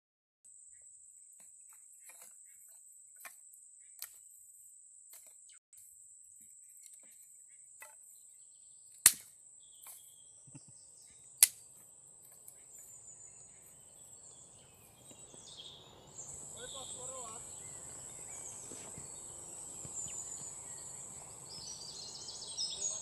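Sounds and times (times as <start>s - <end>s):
sticks and grass crackling: 1.4s - 23.0s
sharp wooden cracks: 8.9s - 10.1s, 11.4s - 12.6s.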